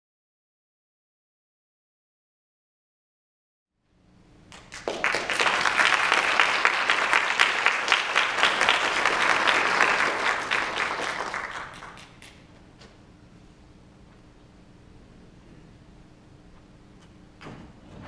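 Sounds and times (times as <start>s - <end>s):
audience applauding: 4.5s - 12.4s.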